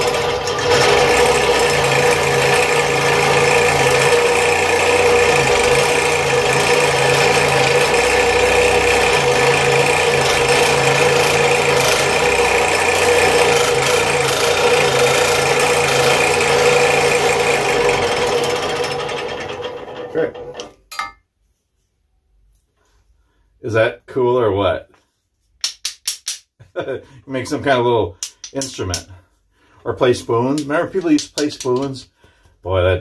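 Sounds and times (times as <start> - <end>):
scroll saw cutting wood: 0.0 - 20.7.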